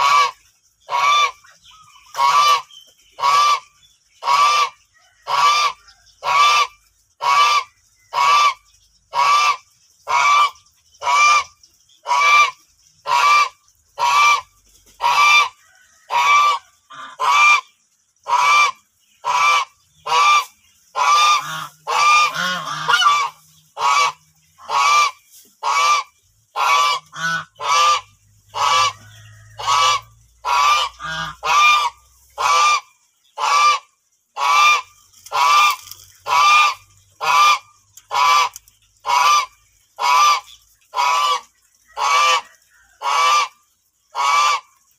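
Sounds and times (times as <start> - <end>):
geese honking: 18.3 - 43.6.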